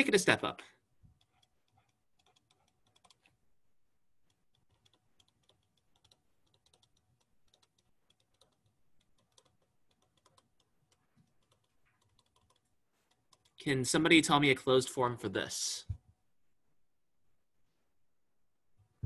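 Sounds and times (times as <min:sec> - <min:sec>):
faint fast clicking and tapping: 0:01.0 - 0:03.4, 0:04.2 - 0:14.2.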